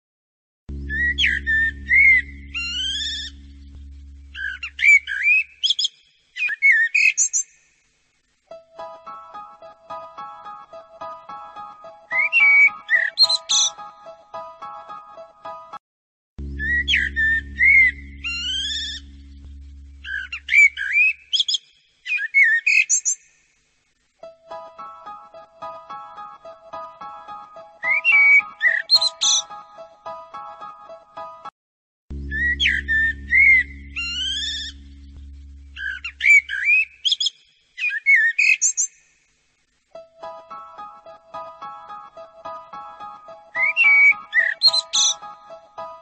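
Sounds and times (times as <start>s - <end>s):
plucked melody: 0.7s - 4.6s, 40.0s - 44.2s
low hum: 0.7s - 5.2s, 16.4s - 20.9s, 32.1s - 36.6s
bird-like whistled calls: 0.8s - 3.4s, 4.3s - 7.5s, 12.1s - 13.7s, 16.6s - 19.0s, 20.0s - 23.2s, 32.3s - 34.8s, 35.8s - 38.9s, 43.6s - 45.2s.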